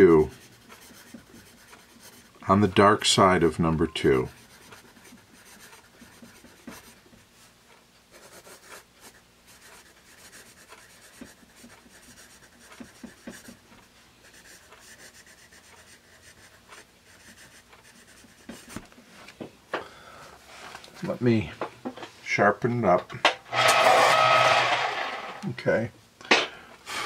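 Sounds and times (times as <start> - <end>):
pencil scratching on paper: 0.0 - 7.5, 8.1 - 18.8
pencil point ticks: 0.3 - 2.8, 4.0 - 7.0, 8.2 - 18.7.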